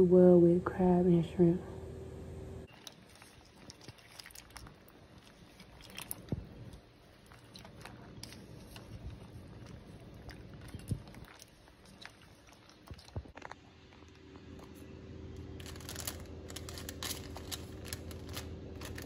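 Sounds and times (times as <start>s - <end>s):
water splashing: 2.7s - 13.4s.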